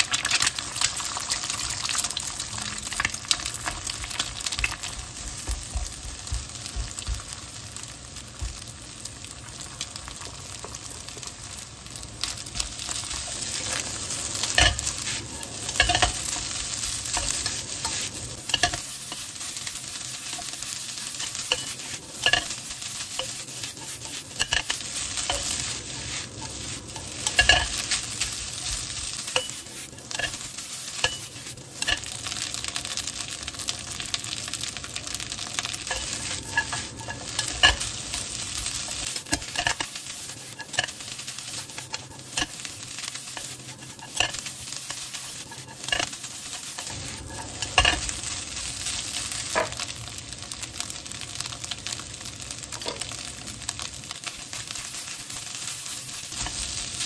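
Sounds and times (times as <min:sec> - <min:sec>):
food sizzling in a hot pan: 0:00.0 - 0:57.0
utensil scraping and knocking a pan: 0:12.6 - 0:32.2, 0:35.6 - 0:48.2, 0:49.5 - 0:49.8.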